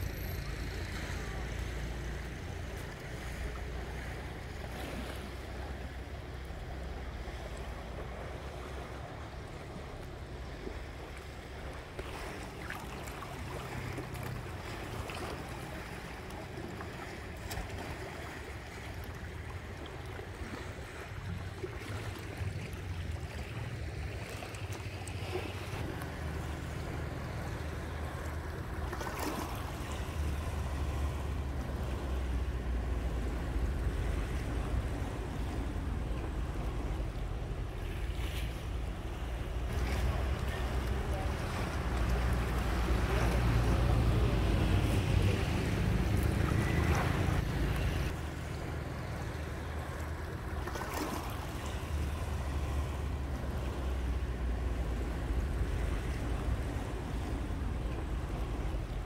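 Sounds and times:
sea waves washing: 0:00.0 - 0:59.0.

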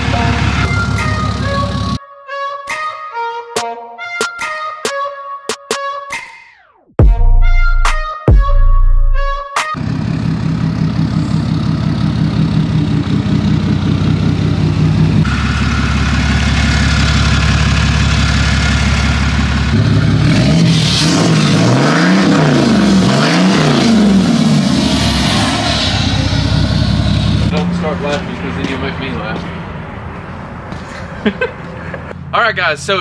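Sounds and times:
diesel engine idling: 0:00.0 - 0:02.0, 0:09.8 - 0:20.6, 0:23.9 - 0:29.7
engine revving: 0:09.8 - 0:29.3.

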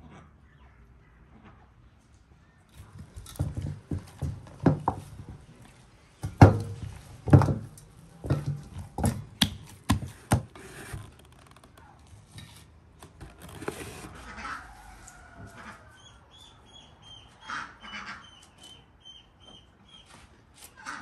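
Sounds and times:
knock of basin: 0:06.2 - 0:10.5
dough slapping and thumping: 0:06.2 - 0:10.9.

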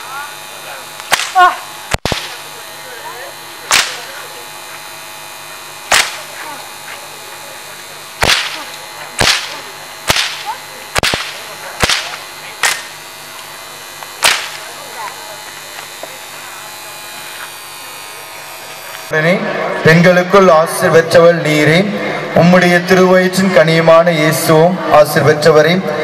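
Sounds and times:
whips cracking: 0:01.0 - 0:02.4, 0:03.7 - 0:04.2, 0:05.9 - 0:06.5, 0:08.2 - 0:13.0, 0:14.2 - 0:14.7.

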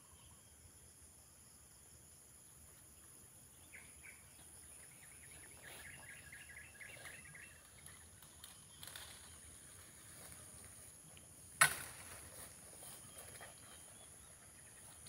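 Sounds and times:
high insect drone: 0:00.0 - 0:15.0
bird chirping: 0:02.3 - 0:10.6, 0:12.6 - 0:15.0.

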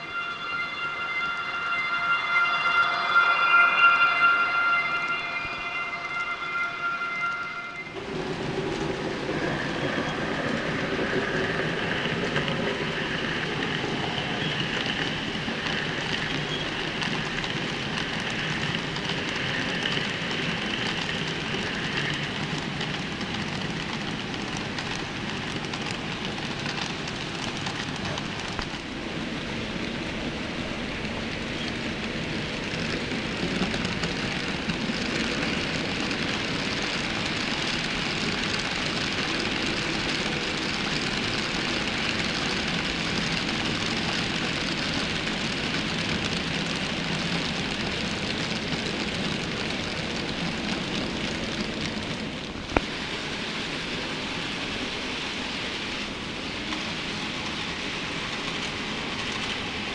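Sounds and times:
horn-like pitched tone: 0:00.0 - 0:08.0
wheels rattling on track: 0:07.9 - 0:59.9.

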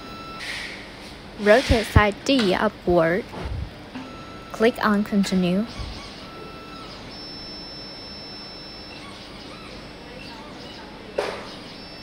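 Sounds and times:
machine motors whining: 0:04.0 - 0:12.0.

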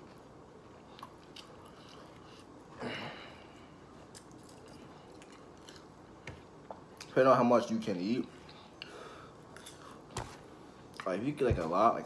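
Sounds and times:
person chewing food: 0:00.0 - 0:02.8, 0:03.5 - 0:07.1.

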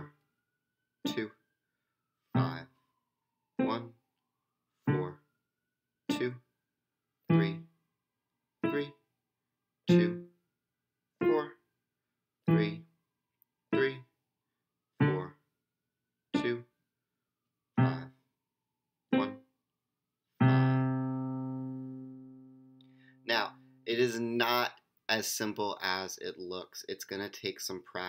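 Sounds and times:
staccato keyboard piano notes: 0:04.9 - 0:05.2, 0:07.3 - 0:07.6, 0:12.5 - 0:12.8, 0:15.0 - 0:15.4, 0:19.1 - 0:19.4, 0:20.4 - 0:21.9.

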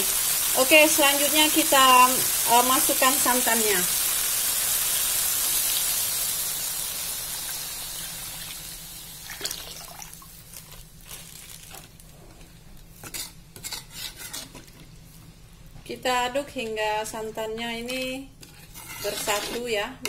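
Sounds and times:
coconut milk sizzling in a wok: 0:00.0 - 0:11.8, 0:13.0 - 0:14.6, 0:18.4 - 0:20.0
metal spatula scraping a wok: 0:13.0 - 0:14.6, 0:18.4 - 0:19.9.

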